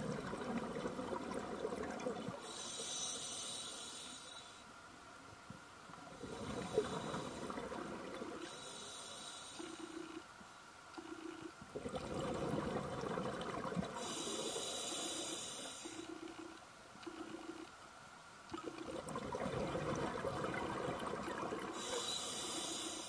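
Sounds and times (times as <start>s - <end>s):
exhaled bubbles rushing: 0.0s - 2.4s, 11.1s - 14.0s, 18.5s - 21.8s
scuba regulator breathing: 2.4s - 4.6s, 14.0s - 16.2s, 21.7s - 23.0s.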